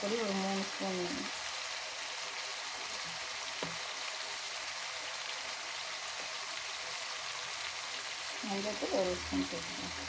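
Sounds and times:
onions frying in oil: 0.0s - 10.0s
light tap: 3.6s - 3.8s.

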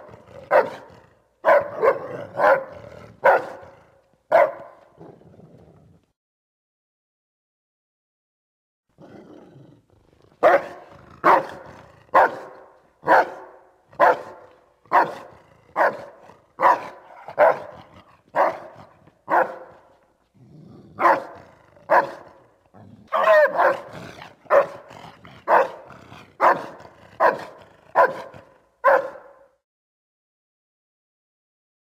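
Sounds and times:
dog growling: 0.0s - 4.1s, 5.0s - 6.1s, 9.0s - 12.7s, 14.0s - 28.6s
dog barking deeply: 0.0s - 5.2s, 10.4s - 20.0s, 20.9s - 29.6s.

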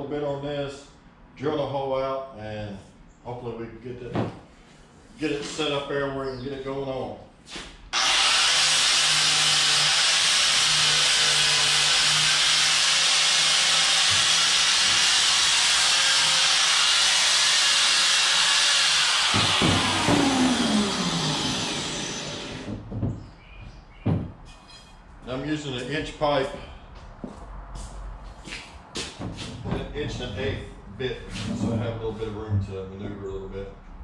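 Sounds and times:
angle grinder grinding metal: 8.0s - 22.7s
motor winding down whine: 8.0s - 22.7s.

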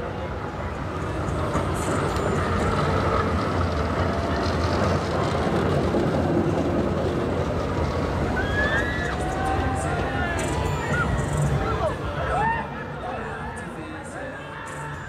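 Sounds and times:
tram wheels rumbling on rails: 0.0s - 15.0s.

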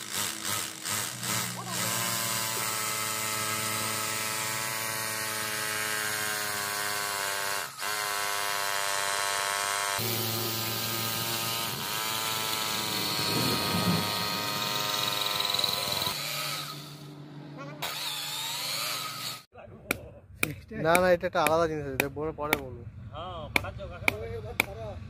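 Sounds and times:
hammer drill boring into tile: 0.0s - 17.0s.

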